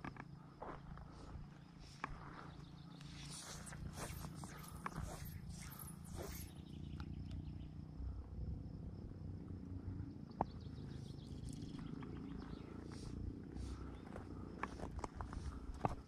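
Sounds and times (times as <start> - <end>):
faint insect drone: 0.0 - 16.0.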